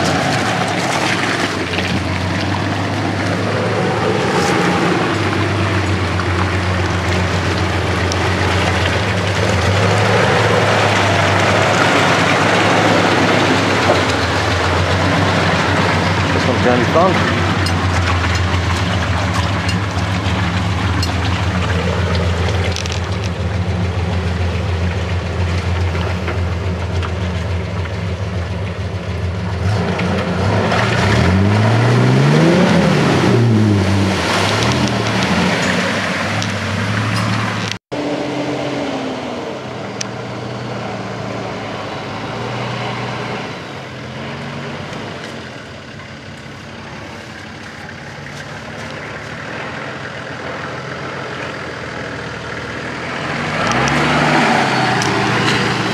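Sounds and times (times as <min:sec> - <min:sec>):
four-wheel drive engine revving: 0:00.0 - 0:28.3, 0:29.1 - 0:55.9.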